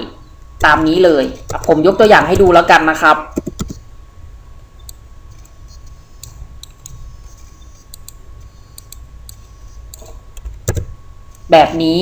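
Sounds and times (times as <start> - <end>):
faint low hum: 0.0 - 12.0
mouse and keyboard clicks: 3.4 - 3.8, 4.8 - 11.4.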